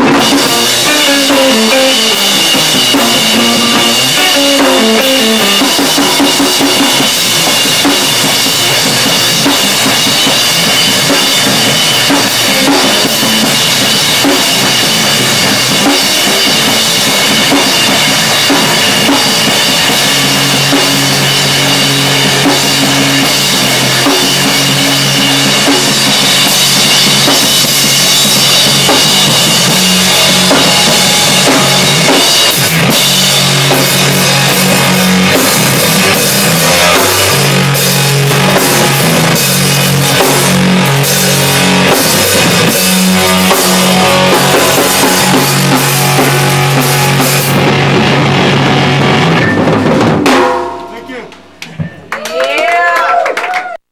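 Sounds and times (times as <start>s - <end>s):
drum kit cymbals: 0.0s - 52.0s
live rock band playing: 0.0s - 52.8s.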